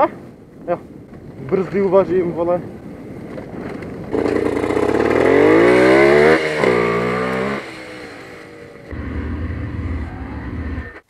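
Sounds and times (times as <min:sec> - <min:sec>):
motorcycle engine accelerating: 0:03.3 - 0:11.0
low engine rumble: 0:06.6 - 0:11.0.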